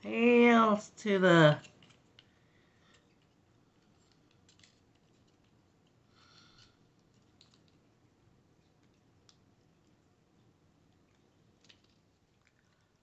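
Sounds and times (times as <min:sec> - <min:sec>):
soft rustle: 0:01.6 - 0:07.9
faint clicks of craft parts: 0:01.6 - 0:13.0.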